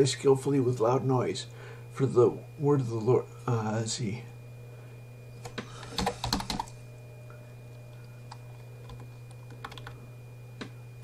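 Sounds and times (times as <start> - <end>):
faint high whine: 0.0 - 11.0
steady low hum: 0.0 - 11.0
keyboard typing: 5.8 - 6.7, 8.3 - 10.0.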